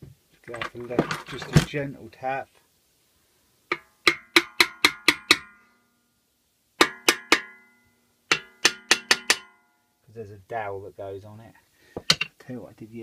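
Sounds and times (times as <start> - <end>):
hammer tapping metal: 3.7 - 5.6, 6.8 - 9.6.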